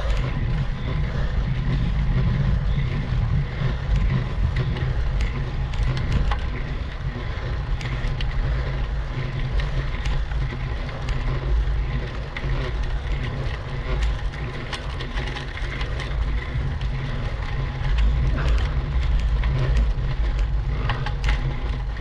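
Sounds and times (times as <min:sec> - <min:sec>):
light ticks: 0:00.0 - 0:22.0
low rumble of riding noise: 0:00.0 - 0:22.0.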